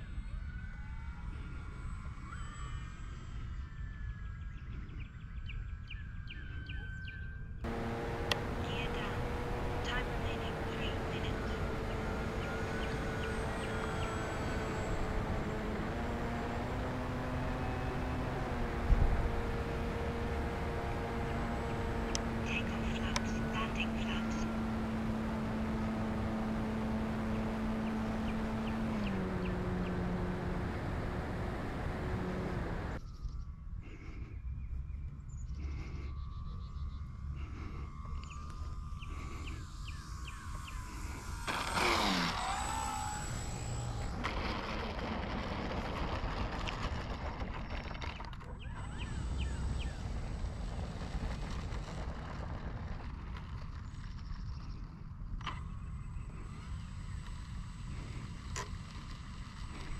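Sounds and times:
low outdoor rumble: 7.6s - 33.1s, 33.7s - 59.9s
model plane motor drone: 7.6s - 33.4s, 35.2s - 59.9s
rush of plane touching down: 41.5s - 48.4s, 50.0s - 54.1s.

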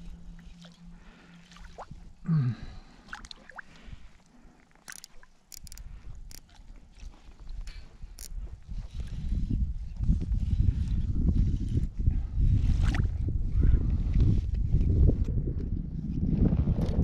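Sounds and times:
fishing reel cranking hum: 4.8s - 6.5s
sharp clicks of rod and reel: 4.8s - 6.6s, 7.6s - 8.4s.

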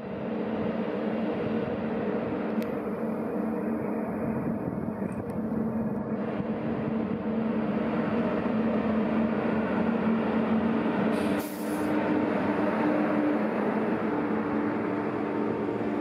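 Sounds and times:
locomotive hum with held tones: 0.0s - 16.0s
train rolling noise: 0.0s - 16.0s
short hiss: 11.1s - 11.9s.

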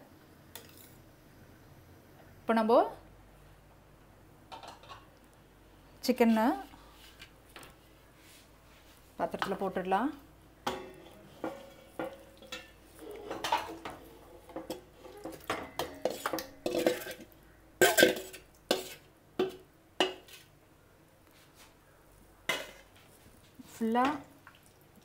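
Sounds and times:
metal bowl clanking against pot: 10.6s - 20.3s.

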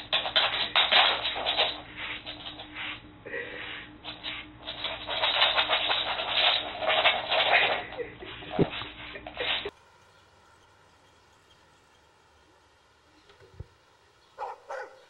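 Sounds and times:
brush strokes through dog fur: 1.4s - 5.7s.

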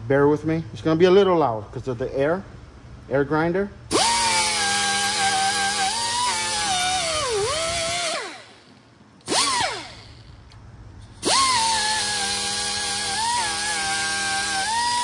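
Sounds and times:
air grinder whining: 3.9s - 15.0s.

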